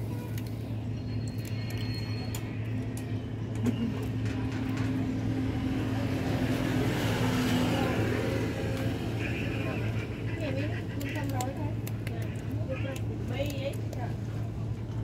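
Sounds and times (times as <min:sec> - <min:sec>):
vehicle engine humming: 0:00.0 - 0:15.0
cat eating from plastic bag: 0:00.1 - 0:15.0.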